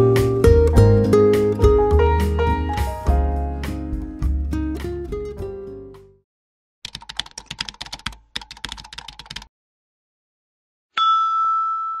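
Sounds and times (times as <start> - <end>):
keyboard typing clicks: 6.9 - 9.5
bright ringing tone: 11.0 - 12.0.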